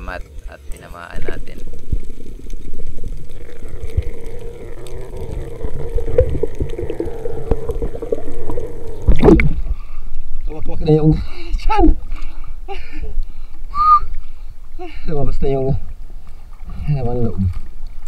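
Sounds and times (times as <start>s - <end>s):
steady hum: 0.0s - 15.3s
underwater rumble of moving water: 0.0s - 18.0s
underwater swirl: 0.0s - 18.0s
underwater clicks: 0.2s - 9.8s.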